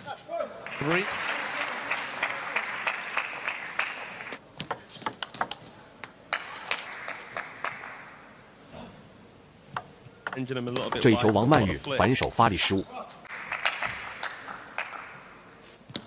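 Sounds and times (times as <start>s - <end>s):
crowd applauding: 0.6s - 4.4s, 13.3s - 15.2s.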